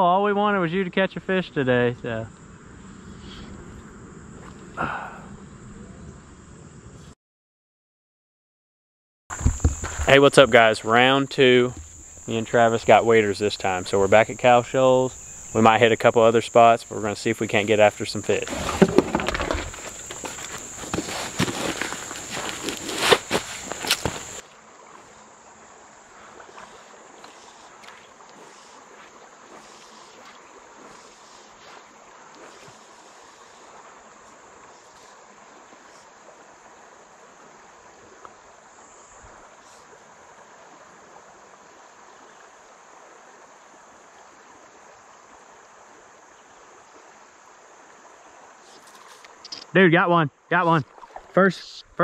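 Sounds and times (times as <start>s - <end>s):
river current rushing: 9.3s - 42.1s, 47.2s - 52.0s
faint high-pitched hiss: 9.3s - 52.0s.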